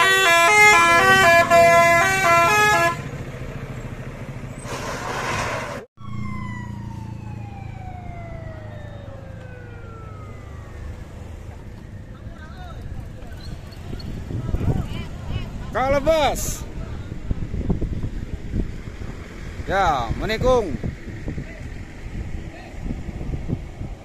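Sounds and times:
musical air horn tune: 0:00.0 - 0:03.1
bus engine running: 0:00.0 - 0:24.0.

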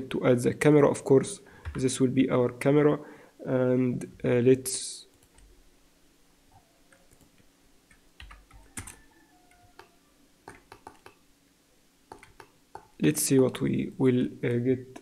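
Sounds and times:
faint steady hum: 0:00.0 - 0:15.0
mouse and keyboard clicks: 0:09.8 - 0:11.2, 0:12.1 - 0:13.0.

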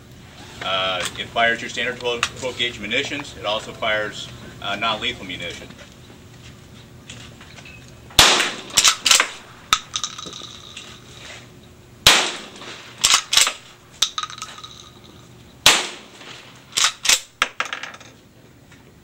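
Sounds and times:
shotgun shots: 0:08.2 - 0:10.0, 0:12.0 - 0:13.8, 0:15.6 - 0:17.4
metallic bolt clacks: 0:13.0 - 0:15.3.

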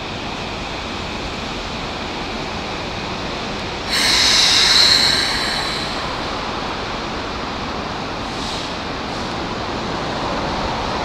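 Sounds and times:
electric train humming: 0:00.0 - 0:10.2
compressed air hiss: 0:03.9 - 0:07.1.

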